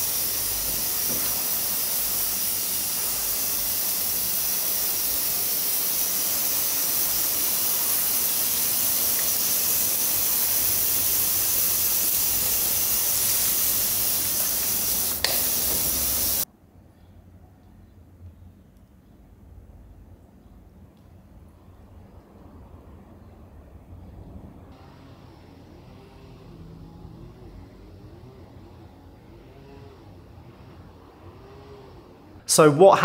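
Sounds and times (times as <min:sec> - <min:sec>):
hose spraying water: 0:00.0 - 0:16.4
spray gun click: 0:14.3 - 0:16.4.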